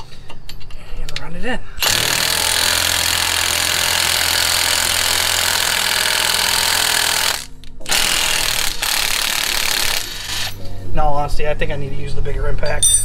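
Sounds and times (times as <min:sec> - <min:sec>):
impact wrench hammering: 0:01.8 - 0:10.6.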